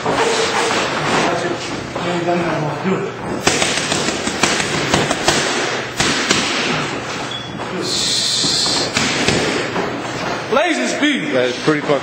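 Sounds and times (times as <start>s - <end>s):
punches smacking focus mitts: 3.4s - 6.9s.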